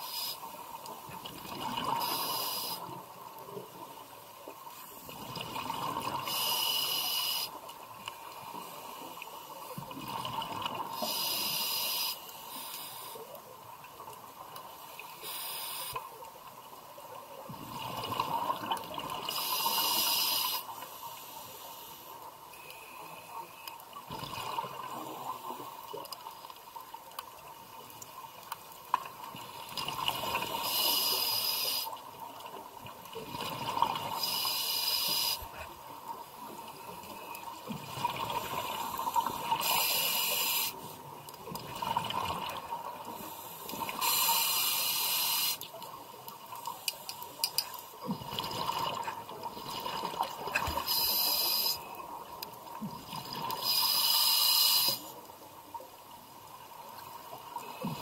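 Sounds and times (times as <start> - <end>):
regulator breathing hiss: 0.0 - 0.5, 2.0 - 3.0, 6.3 - 7.6, 11.0 - 13.3, 15.1 - 16.0, 19.3 - 22.2, 30.5 - 32.0, 34.2 - 35.7, 39.2 - 41.0, 43.2 - 45.6, 50.8 - 52.0, 53.6 - 55.1.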